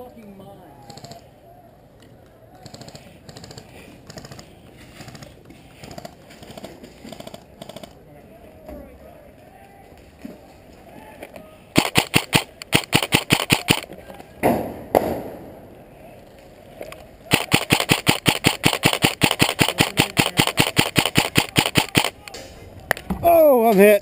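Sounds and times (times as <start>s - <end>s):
airsoft rifle rapid fire: 11.8s - 13.9s, 17.3s - 22.2s.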